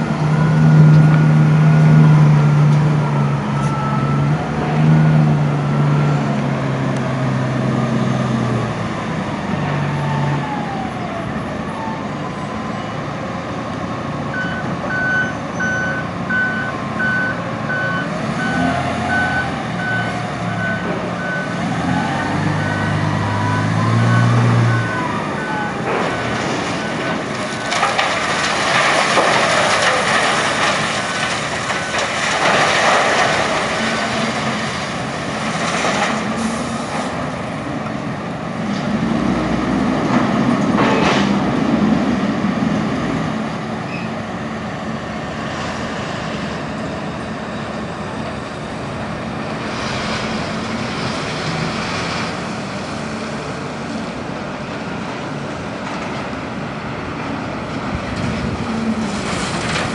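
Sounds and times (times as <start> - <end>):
reversing alarm beeping: 3.3 - 4.4, 14.3 - 27.1.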